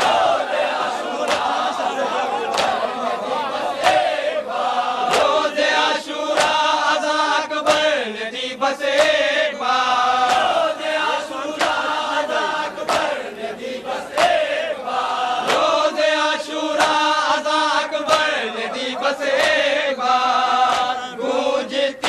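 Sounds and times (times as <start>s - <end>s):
hands slapping chests: 0.0s - 1.8s, 2.4s - 3.0s, 3.8s - 4.2s, 5.0s - 7.0s, 7.6s - 8.0s, 10.2s - 13.3s, 14.1s - 14.6s, 15.4s - 21.1s
men chanting together: 0.0s - 22.0s.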